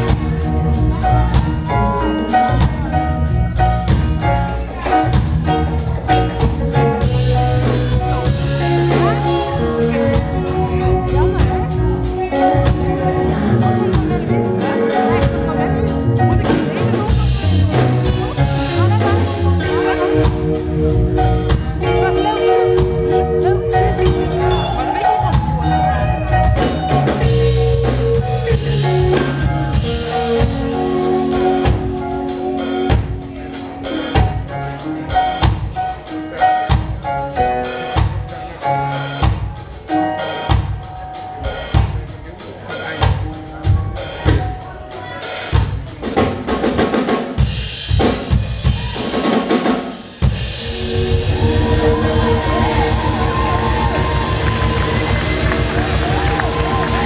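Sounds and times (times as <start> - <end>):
music track: 0.0 - 45.4, 50.2 - 57.0
live rock band playing: 0.0 - 57.0
rapid drum hits: 45.6 - 57.0.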